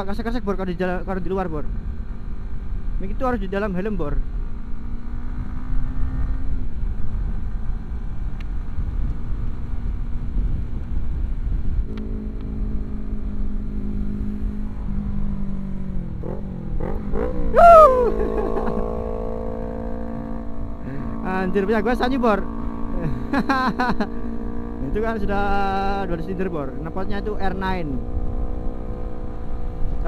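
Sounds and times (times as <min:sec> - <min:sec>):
wind rumble on microphone: 0:00.0 - 0:30.0
sport motorcycle engine: 0:00.9 - 0:10.5, 0:11.4 - 0:30.0
motorcycle engine revving: 0:04.2 - 0:08.3, 0:11.8 - 0:30.0.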